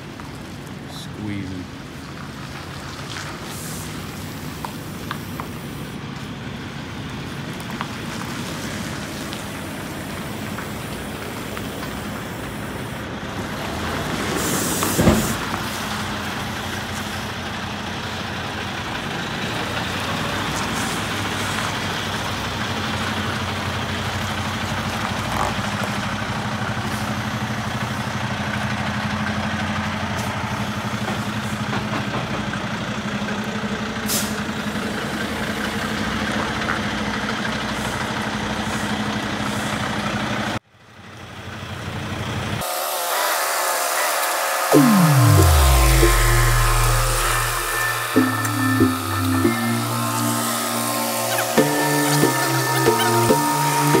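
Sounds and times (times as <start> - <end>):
diesel truck engine running: 0.0 - 42.6
air brake hiss with knock: 14.3 - 16.0, 34.1 - 34.4.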